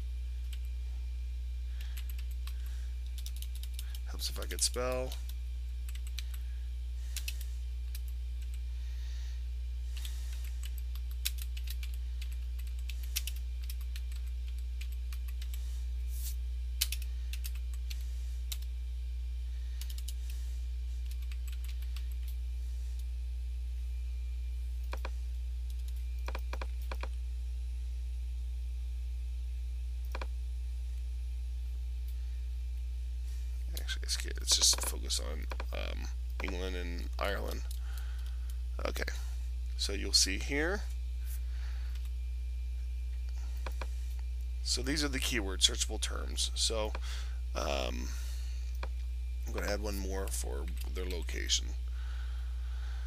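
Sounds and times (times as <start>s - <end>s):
low electrical hum: 0.0s - 53.0s
typing on keyboard: 3.2s - 4.0s, 10.4s - 15.6s, 21.0s - 22.3s.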